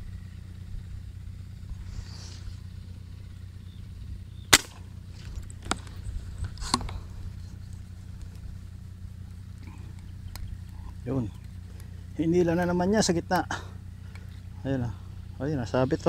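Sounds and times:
steady low hum: 0.0s - 16.0s
slingshot snap: 4.5s - 4.9s
faint clicks: 9.3s - 11.9s.

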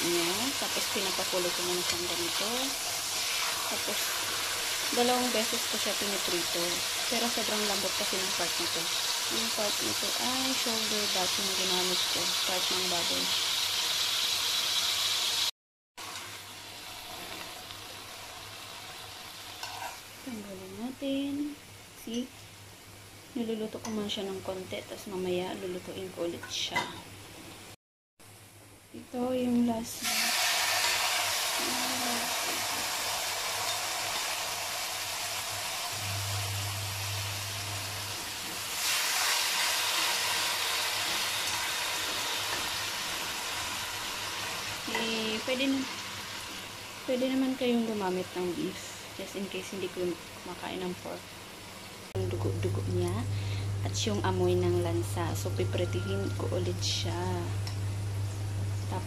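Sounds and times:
meat sizzling in hot oil: 0.0s - 21.6s, 29.9s - 54.4s.

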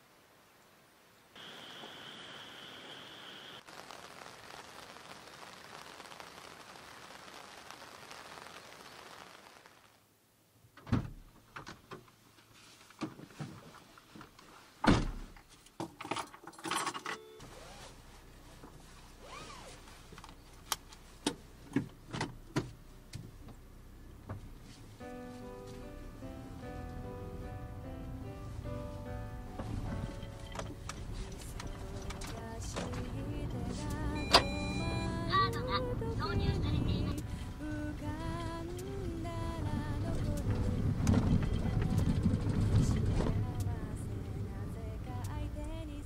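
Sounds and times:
steady hiss: 0.0s - 10.4s
rustling: 3.6s - 10.0s, 12.3s - 14.8s, 17.4s - 21.5s, 28.5s - 34.0s
car door shutting: 33.9s - 34.8s.

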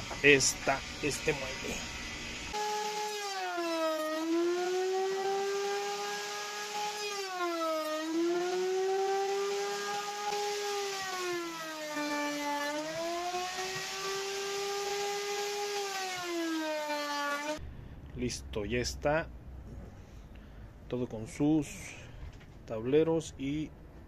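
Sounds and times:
wood router whining: 0.0s - 17.6s.

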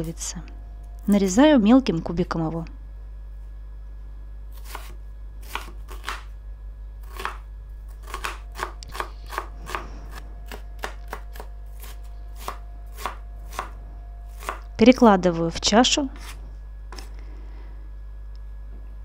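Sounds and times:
knife chopping on wooden board: 4.6s - 6.3s, 7.0s - 7.4s, 8.0s - 13.8s, 14.4s - 14.6s.

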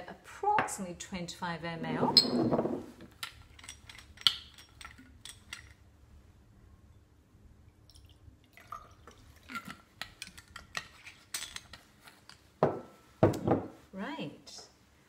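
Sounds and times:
glass bottles clinking: 2.1s - 2.8s
liquid trickling into beakers: 7.9s - 9.7s.

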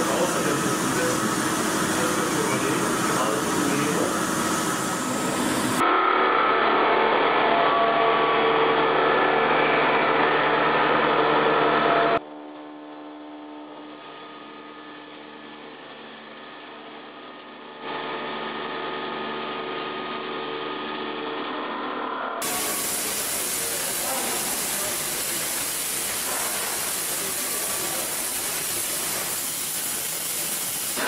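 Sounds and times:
coolant spray: 0.0s - 5.8s, 22.4s - 31.0s
drilling machine humming: 0.0s - 5.8s, 22.4s - 31.0s
milling machine cutting metal: 0.0s - 5.8s, 22.4s - 31.0s
shot-peening machine noise: 0.0s - 5.9s, 22.4s - 31.0s.

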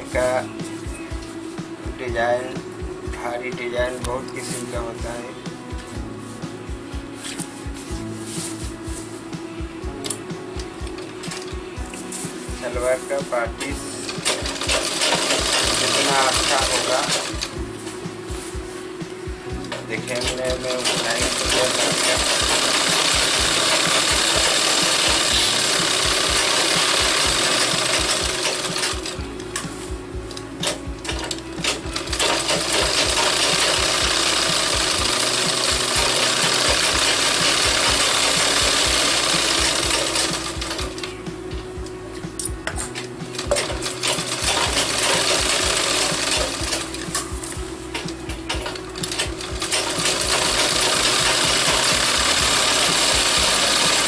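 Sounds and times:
sewing machine stitching: 14.1s - 17.5s, 19.7s - 29.2s, 30.6s - 41.0s, 43.4s - 47.2s, 48.0s - 54.0s.

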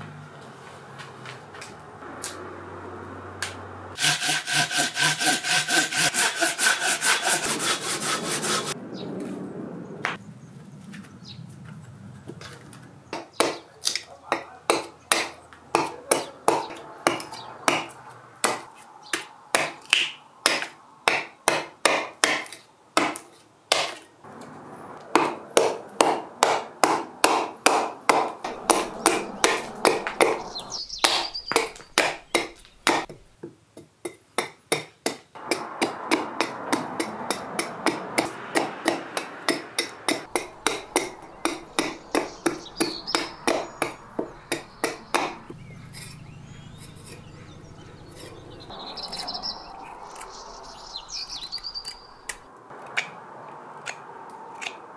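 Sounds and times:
hatchet chopping wood: 3.4s - 8.2s, 13.1s - 24.1s, 25.1s - 46.1s.

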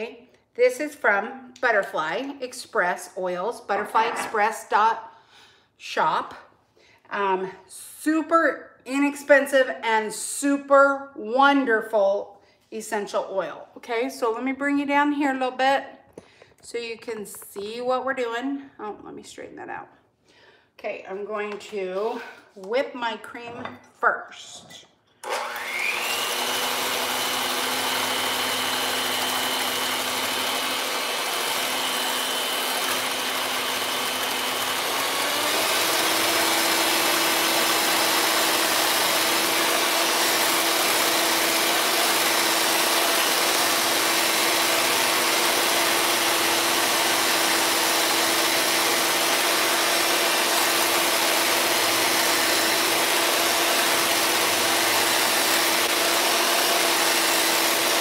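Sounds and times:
electric hand mixer whining: 25.2s - 58.0s.

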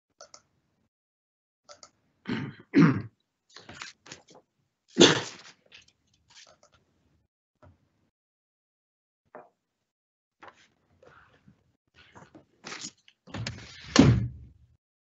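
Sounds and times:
person coughing: 2.3s - 3.1s, 5.0s - 5.4s
person clearing throat: 2.3s - 3.2s, 5.0s - 5.4s.

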